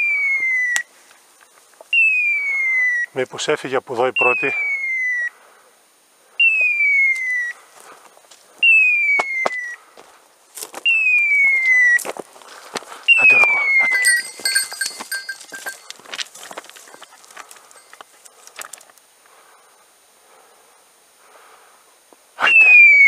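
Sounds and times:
feet clicking on loose stones: 0:09.2 - 0:19.1.

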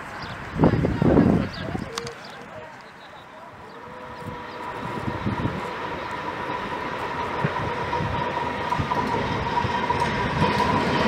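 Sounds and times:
steam locomotive rumbling past: 0:03.2 - 0:11.0.

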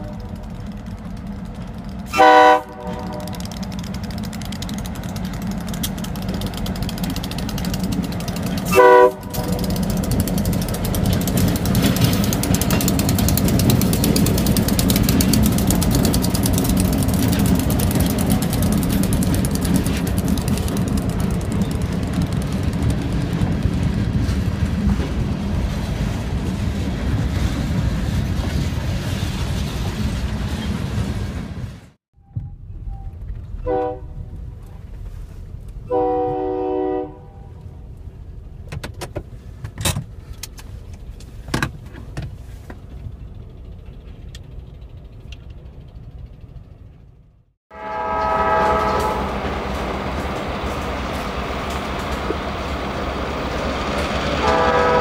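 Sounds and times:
train horn blasts: 0:00.0 - 0:00.4, 0:02.1 - 0:03.6, 0:08.6 - 0:09.8, 0:33.6 - 0:34.3, 0:35.8 - 0:37.7, 0:47.7 - 0:50.2, 0:54.4 - 0:55.0
freight cars rolling: 0:00.0 - 0:36.6, 0:37.5 - 0:55.0
diesel locomotives rumbling: 0:00.0 - 0:55.0.

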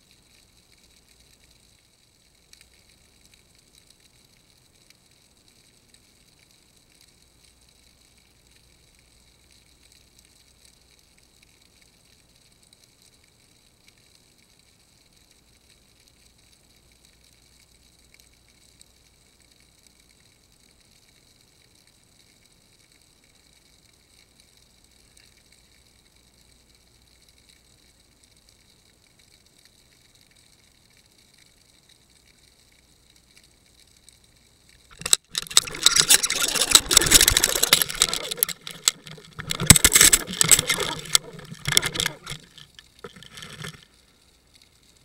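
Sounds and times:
faint steady hiss: 0:00.0 - 0:45.0
camera scraping along sandy seabed: 0:29.6 - 0:45.0.

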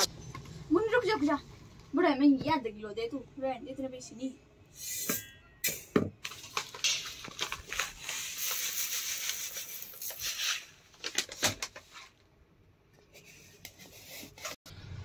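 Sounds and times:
paper bag of lentils rustling: 0:06.2 - 0:12.2.

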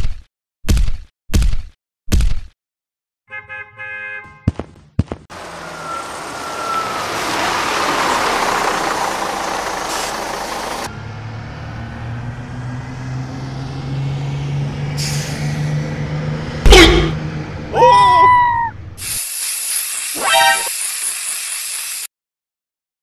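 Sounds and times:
bus rushing noise: 0:05.3 - 0:19.0
bus engine idling: 0:05.4 - 0:10.9
air brake hiss: 0:09.9 - 0:10.2, 0:15.0 - 0:15.6.

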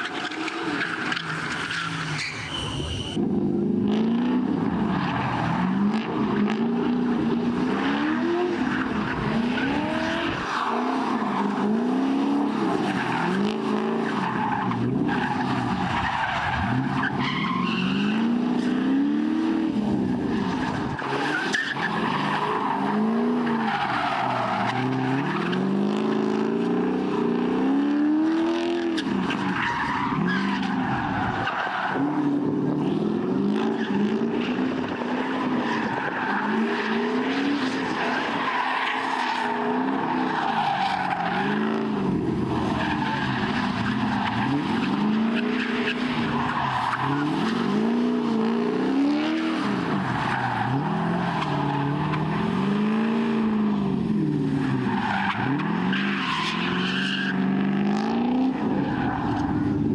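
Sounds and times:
tyres squealing and skidding: 0:00.0 - 0:59.9
car engine revving: 0:03.1 - 0:29.2, 0:39.5 - 0:59.9.

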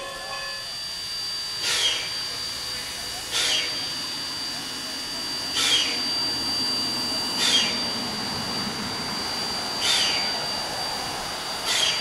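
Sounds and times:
steam locomotive hissing: 0:00.0 - 0:12.0.

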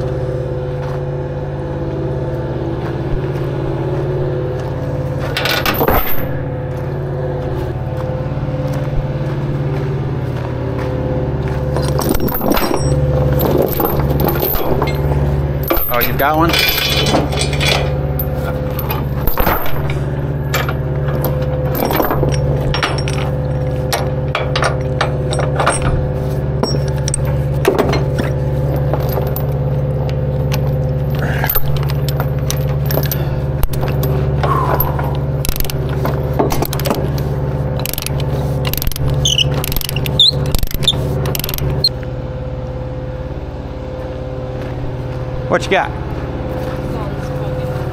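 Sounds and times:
engine idling: 0:00.0 - 0:47.9
metal chain clinking: 0:05.2 - 0:06.6, 0:11.7 - 0:41.9.

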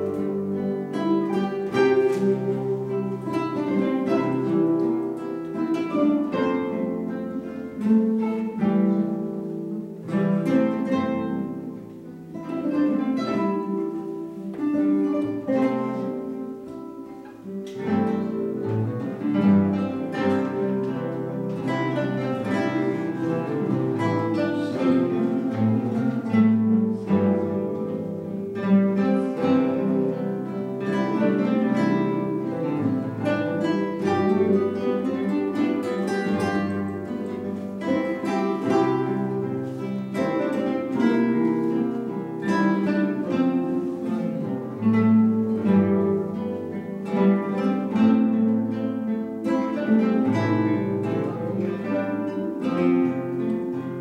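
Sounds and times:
classical guitar ensemble: 0:00.0 - 0:54.0.

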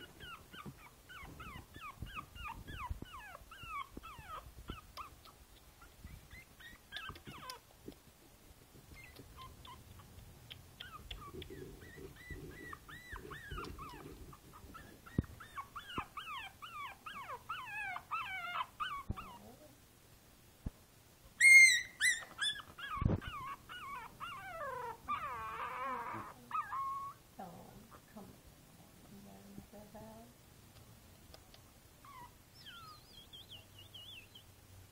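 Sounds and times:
puppy whimpering and whining: 0:00.0 - 0:07.6, 0:08.9 - 0:10.1, 0:10.8 - 0:19.6, 0:21.4 - 0:27.2, 0:32.0 - 0:34.5
puppy yelp: 0:00.0 - 0:07.6, 0:09.0 - 0:10.1, 0:10.8 - 0:19.4, 0:21.4 - 0:27.2, 0:32.0 - 0:34.4.

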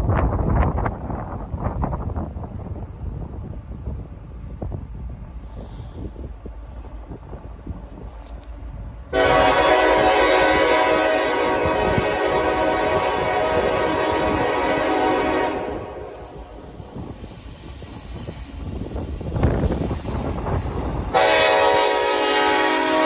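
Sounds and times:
train rumbling: 0:00.0 - 0:23.0
locomotive air horn blast: 0:09.1 - 0:16.6, 0:21.1 - 0:23.0.

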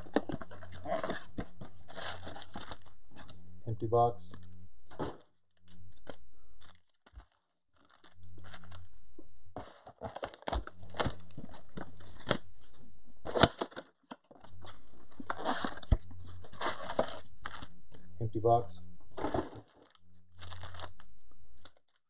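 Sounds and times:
foil packs crinkling and rattling: 0:00.0 - 0:03.3, 0:06.0 - 0:08.9, 0:09.6 - 0:12.4, 0:13.2 - 0:17.7, 0:19.1 - 0:21.0
low steady hum: 0:00.0 - 0:21.8
cardboard box tearing: 0:09.6 - 0:11.3, 0:19.2 - 0:21.0.

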